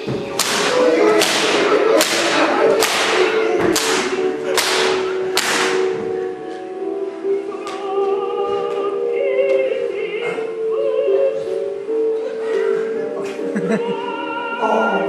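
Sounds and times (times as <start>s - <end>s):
whip cracking: 0.2s - 5.9s.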